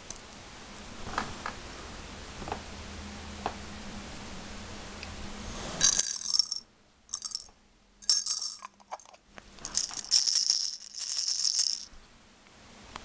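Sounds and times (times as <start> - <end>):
dice rattling in plastic case: 5.8 - 11.9.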